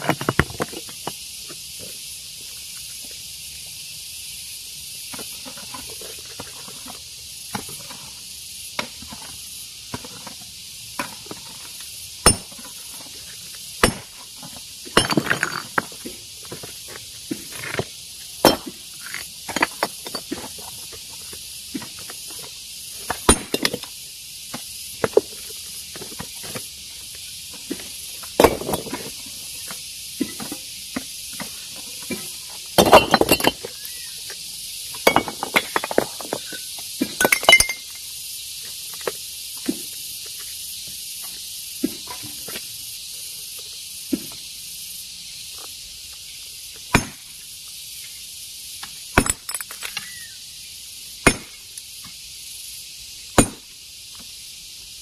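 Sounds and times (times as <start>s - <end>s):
steady high hiss: 0.0s - 55.0s
stone clinking on stone: 12.2s - 12.5s, 13.8s - 14.0s, 15.0s - 15.8s, 23.3s - 23.8s, 32.8s - 33.9s, 35.0s - 38.0s, 49.2s - 50.1s.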